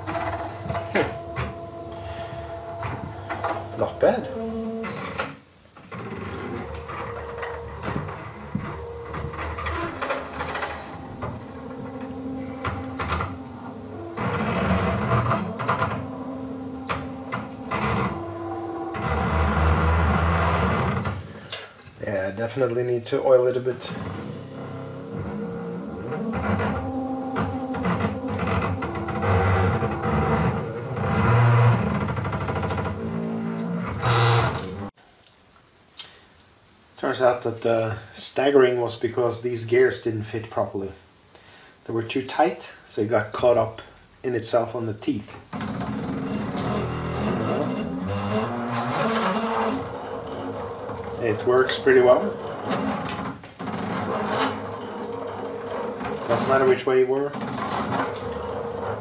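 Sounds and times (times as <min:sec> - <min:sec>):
electric motor driving plastic gears: 0:24.1 - 0:34.9.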